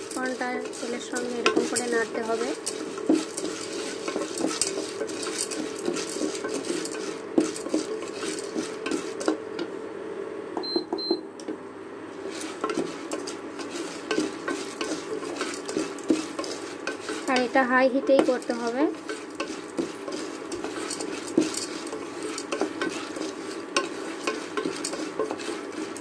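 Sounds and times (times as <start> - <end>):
kernels clicking against metal: 0.0 - 9.3
spatula scraping metal pot: 0.0 - 9.4, 12.2 - 26.0
cooktop beeps: 10.6 - 11.4.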